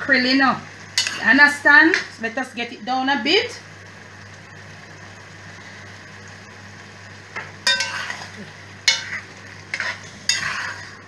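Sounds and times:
faint steady sizzle: 0.0 - 11.0
metal spoon scraping a pot: 7.7 - 8.3, 8.9 - 11.0.

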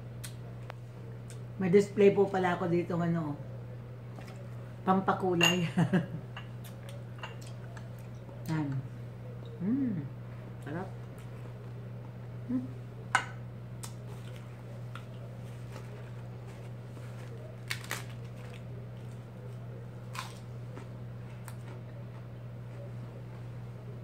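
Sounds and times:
steady low hum: 0.0 - 24.0
lettuce leaves handled: 14.1 - 20.4.

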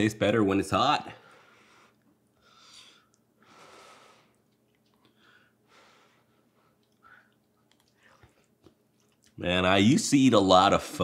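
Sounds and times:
soft breaths while eating: 1.2 - 8.6.

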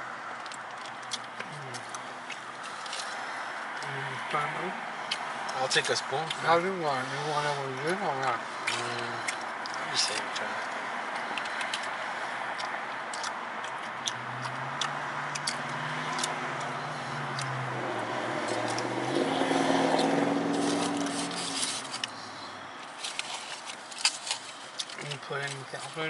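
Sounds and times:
aluminium foil crinkling: 20.5 - 22.2, 22.8 - 26.0.

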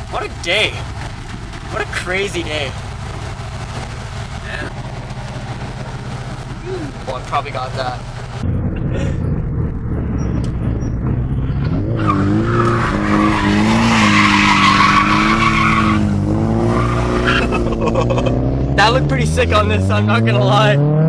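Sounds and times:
car engine revving: 0.0 - 21.0
road noise: 0.0 - 21.0
tyres squealing: 11.6 - 17.8.

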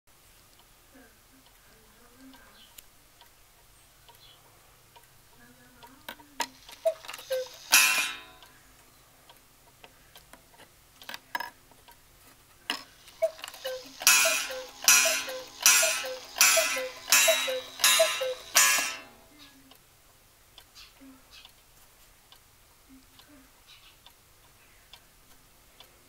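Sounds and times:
clock ticking: 5.8 - 8.6, 13.1 - 19.3
two-note cuckoo call: 6.8 - 8.4, 13.2 - 19.2
ringing gong strikes: 7.7 - 8.4, 14.0 - 19.2.

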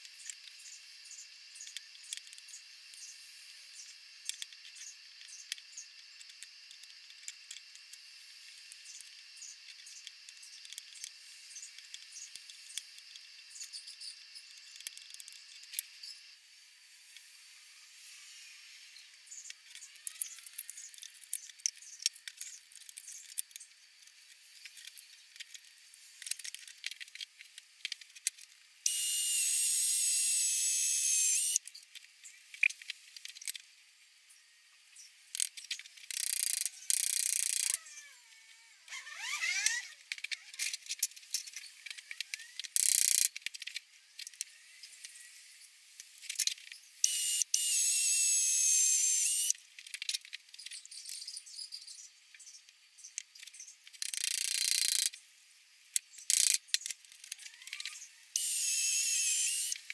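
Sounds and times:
cordless drill motor whining: 28.9 - 31.6, 47.0 - 49.5, 57.7 - 59.8.

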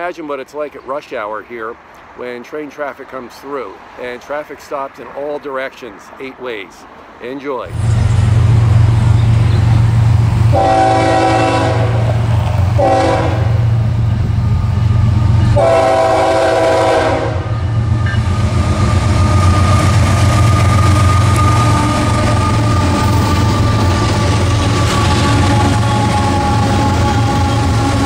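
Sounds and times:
diesel locomotives rumbling past: 0.0 - 28.0
train horn blasts: 10.4 - 13.8, 15.1 - 28.0.

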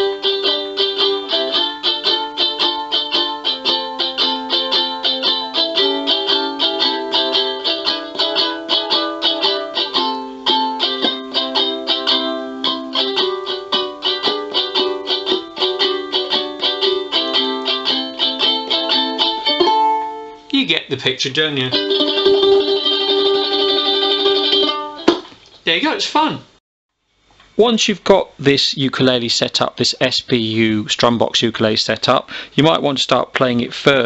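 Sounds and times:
ukulele chord strumming: 0.0 - 20.6, 21.3 - 25.4.

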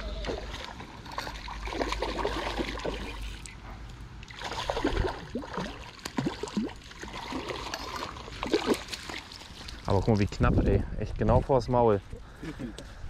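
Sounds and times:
landing net sloshing through water: 0.0 - 10.4
fish thrashing and splashing: 0.2 - 3.6, 4.2 - 10.2.

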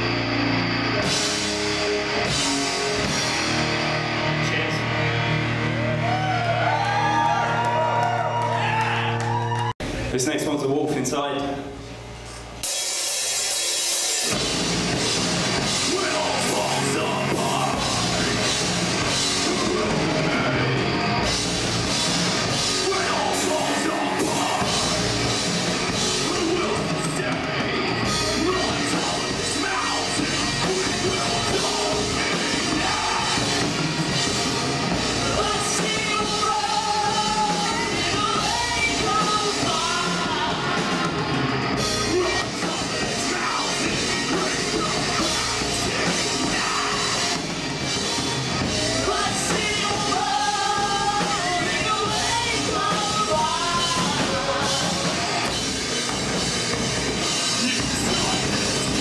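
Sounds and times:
electric guitars: 0.0 - 10.1, 11.6 - 59.0
bass guitar: 0.0 - 59.0
drum kit: 0.0 - 59.0
vocalist singing: 15.5 - 59.0.

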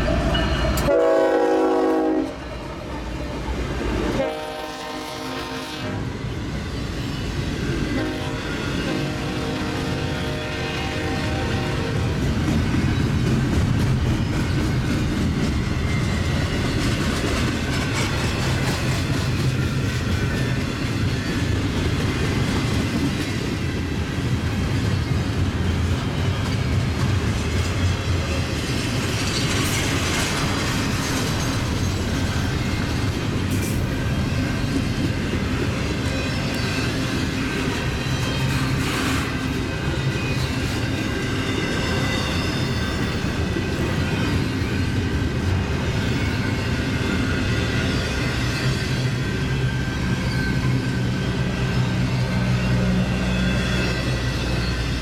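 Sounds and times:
train wheels rumbling on rails: 0.0 - 55.0
clickety-clack over rail joints: 10.7 - 51.1.

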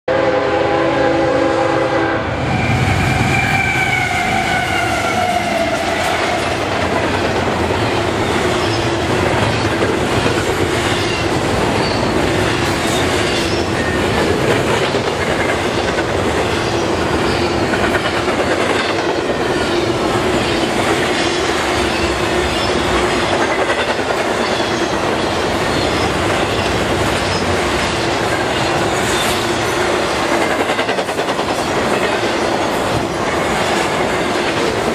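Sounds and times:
locomotive horn: 0.1 - 6.6
steady train tone: 0.1 - 34.9
train wheels clattering: 4.0 - 34.9.

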